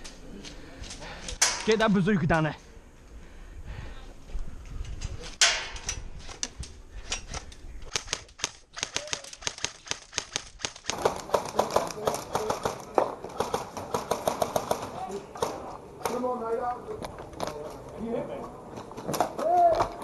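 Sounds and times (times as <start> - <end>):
airsoft guns firing: 7.9 - 16.2.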